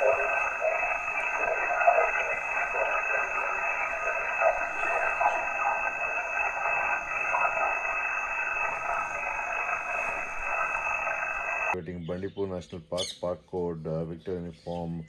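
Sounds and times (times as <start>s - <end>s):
radio band noise hiss: 0.0s - 11.9s
distant radio voices: 0.0s - 13.2s.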